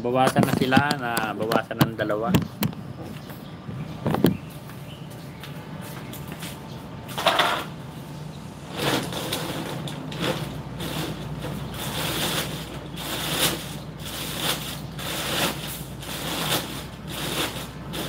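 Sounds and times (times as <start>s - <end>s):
plastic bag crinkling: 8.8s - 18.0s.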